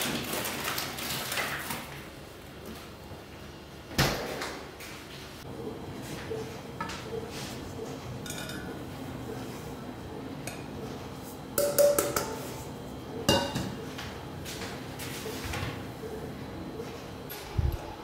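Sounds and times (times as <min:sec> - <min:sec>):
dishes and utensils clinking: 0:08.2 - 0:08.8, 0:13.3 - 0:13.8.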